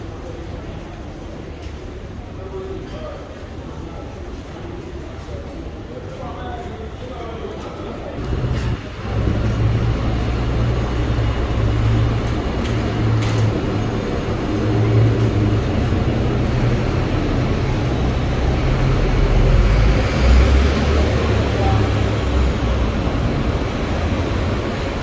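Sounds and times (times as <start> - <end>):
moving vehicle rumble: 7.6 - 25.0.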